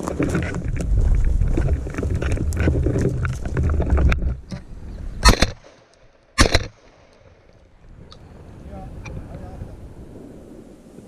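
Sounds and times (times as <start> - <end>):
rumbling wind: 0.0 - 11.0
shotgun shots: 5.2 - 5.8, 6.4 - 6.9.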